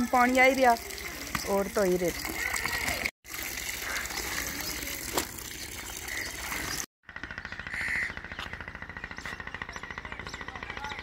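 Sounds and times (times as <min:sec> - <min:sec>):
water splashing and dripping: 0:00.0 - 0:06.9.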